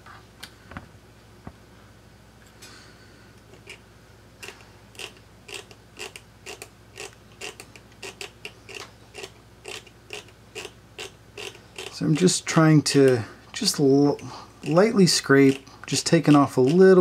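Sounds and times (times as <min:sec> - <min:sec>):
hand tool scraping circuit board: 0:05.0 - 0:12.4, 0:14.6 - 0:17.0.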